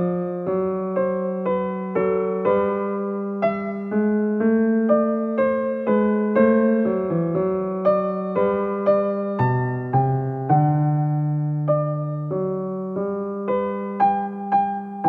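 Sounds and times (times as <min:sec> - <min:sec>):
electric piano playing: 0:00.0 - 0:15.0.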